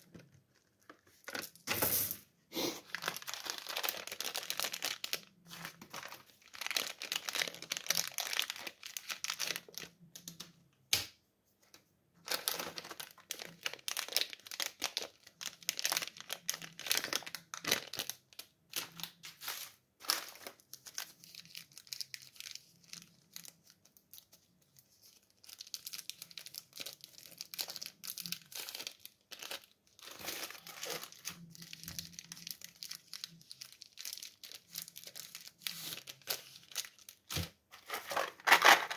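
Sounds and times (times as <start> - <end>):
candy wrappers crinkling: 2.8 - 10.5, 12.2 - 38.9.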